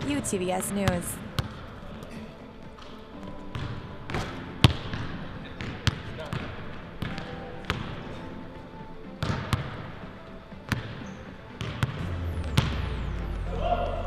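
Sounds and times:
basketball bouncing on gym floor: 0:00.0 - 0:01.6, 0:03.5 - 0:08.0, 0:09.2 - 0:09.9, 0:10.7 - 0:12.7.

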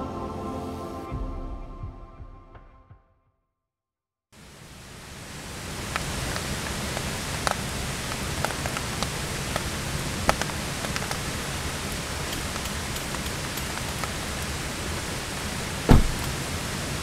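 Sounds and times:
rain hissing: 0:04.4 - 0:17.0
raindrops ticking on surfaces: 0:04.4 - 0:17.0.

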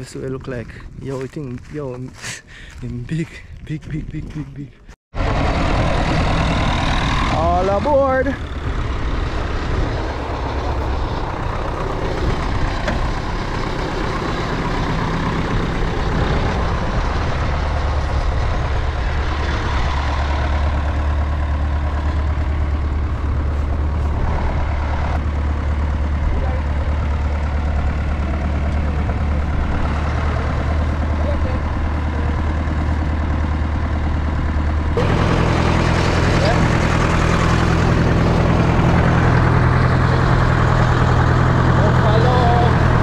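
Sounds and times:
tractor engine idling: 0:05.2 - 0:43.0.

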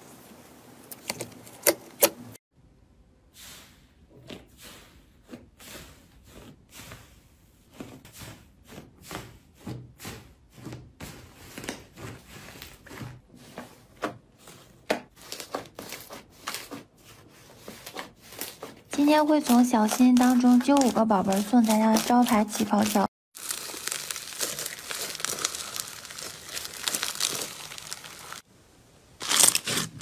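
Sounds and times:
foam slime crackling and squelching: 0:15.1 - 0:28.5, 0:29.2 - 0:30.0.

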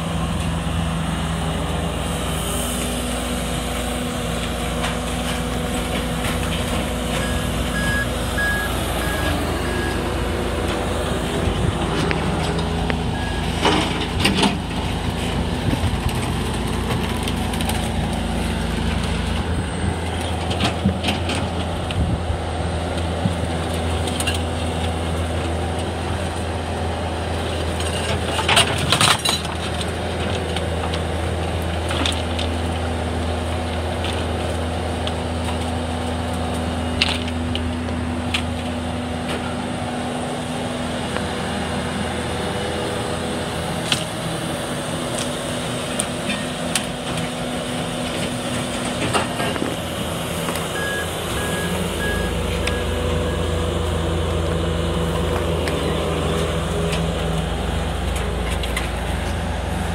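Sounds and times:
garbage truck engine: 0:00.0 - 0:59.9
loader diesel engine running: 0:00.0 - 0:59.9
reversing alarm beeping: 0:07.1 - 0:10.3, 0:13.0 - 0:13.7, 0:50.6 - 0:53.7.

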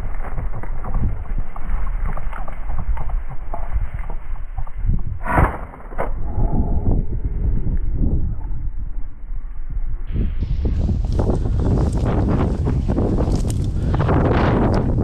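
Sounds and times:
dry grass rustling: 0:00.0 - 0:05.0, 0:10.1 - 0:15.0
wind buffeting microphone: 0:00.0 - 0:15.0.

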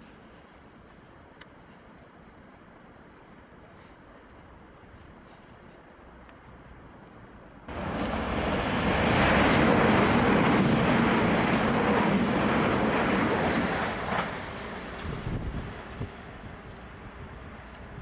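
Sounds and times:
train passing at speed: 0:07.7 - 0:18.0.

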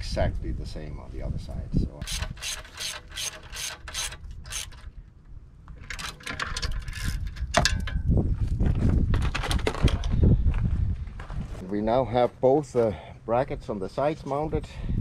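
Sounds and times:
ratchet wrench clicking: 0:02.0 - 0:04.8.

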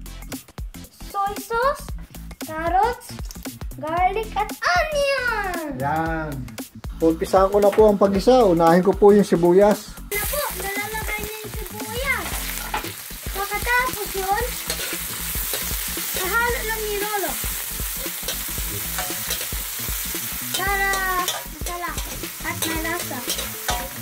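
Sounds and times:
onion sizzling in hot oil: 0:09.3 - 0:24.0
metal ladle scraping wok: 0:14.5 - 0:16.4, 0:18.0 - 0:24.0.

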